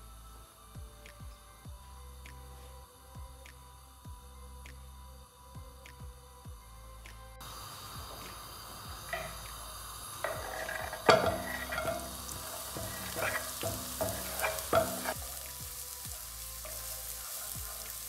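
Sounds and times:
onion sizzling in oil: 7.4 - 18.0
wooden spoon scraping a pan: 10.2 - 15.4
board knocking on pan: 10.3 - 15.2.

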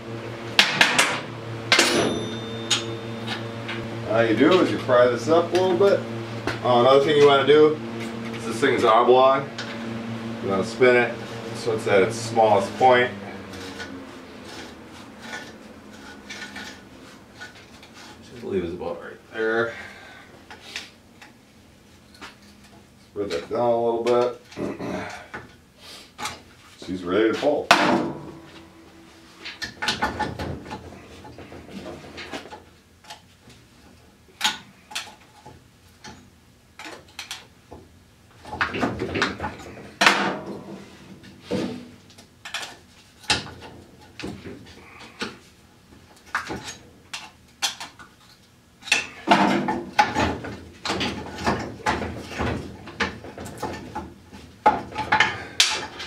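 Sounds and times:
metal scraping: 0.4 - 18.6
metal clanks and knocks: 0.5 - 9.0, 27.7 - 28.8, 38.4 - 45.4, 48.8 - 56.0.

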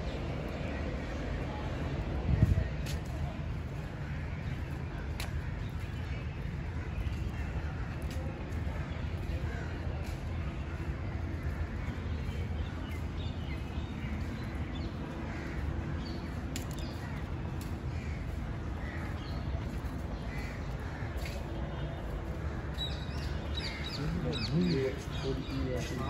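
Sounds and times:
steady low rumble: 0.0 - 26.0
birds calling: 22.3 - 26.0.

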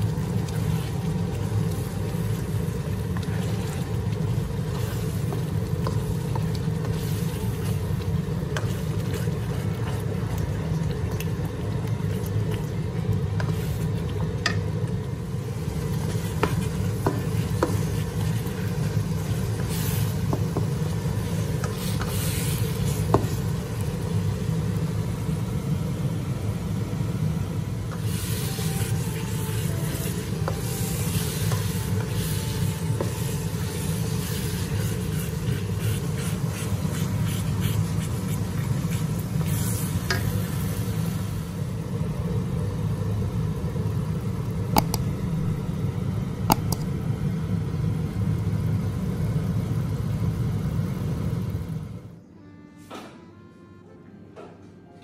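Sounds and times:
spatula stirring and scraping: 0.0 - 14.6, 15.7 - 23.6, 27.9 - 41.0
sauce sizzling in a wok: 0.0 - 51.8
steady low rumble: 44.8 - 47.2.

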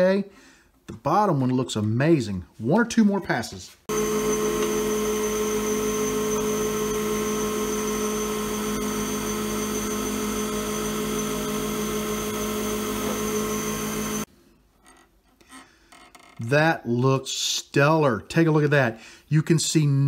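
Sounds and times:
lathe motor hum and whine: 3.9 - 14.3
turning tool cutting resin: 3.9 - 14.3.

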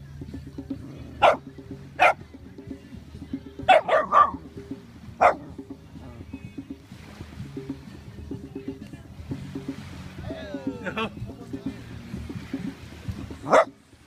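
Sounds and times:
dog barking: 1.2 - 1.4, 2.0 - 2.2, 3.7 - 4.4, 5.2 - 5.4, 13.4 - 13.7.

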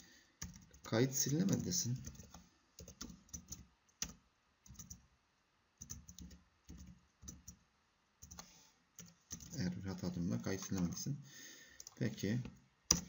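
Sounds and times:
typing on a keyboard: 0.4 - 5.0, 5.8 - 7.6, 8.2 - 8.4, 9.0 - 11.0.

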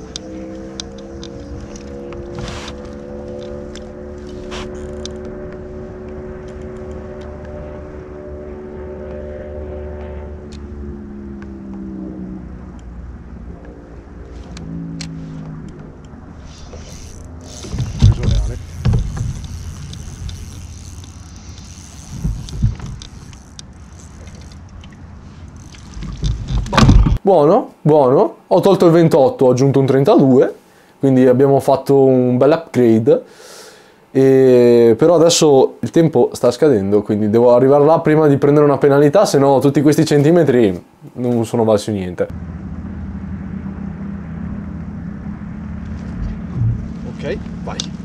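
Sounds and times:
fishing reel gears whirring: 0.0 - 5.8, 16.3 - 26.7
engine drone: 0.0 - 27.2, 42.2 - 48.0
low knocks: 17.5 - 19.8, 46.2 - 47.0.

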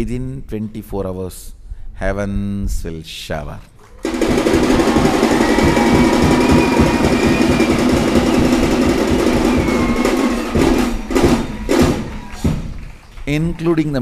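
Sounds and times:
audience applauding: 4.0 - 14.0.

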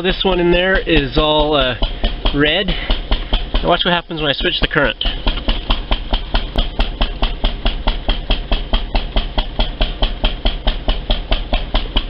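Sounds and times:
machine humming: 0.0 - 12.0
sharp ticking: 0.0 - 12.0.

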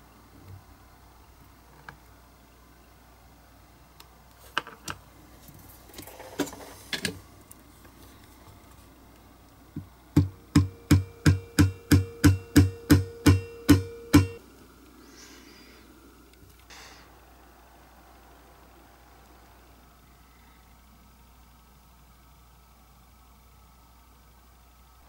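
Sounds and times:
small hammer tapping with metallic ring: 10.2 - 14.4.

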